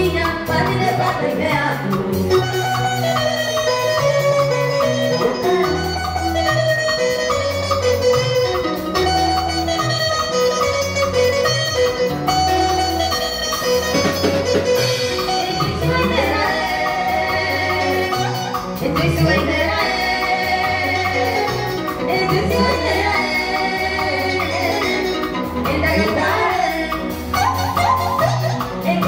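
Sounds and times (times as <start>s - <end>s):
woman singing: 0.0s - 4.4s, 15.1s - 29.0s
live band playing: 0.0s - 29.0s.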